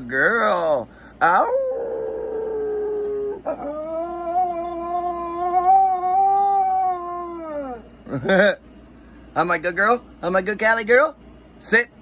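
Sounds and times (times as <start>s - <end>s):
puppy howling: 1.2s - 7.9s.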